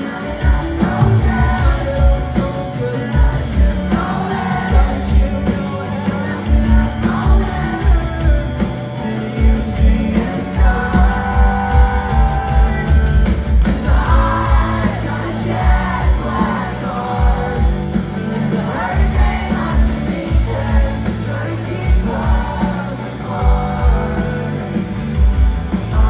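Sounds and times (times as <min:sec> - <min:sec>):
person singing lead vocal: 0:00.0 - 0:26.0
rock band playing live: 0:00.0 - 0:26.0.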